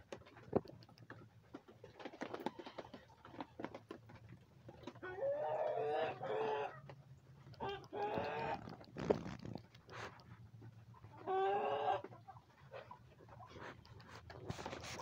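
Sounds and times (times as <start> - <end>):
light ticks and taps: 0.0 - 1.6, 9.6 - 10.8.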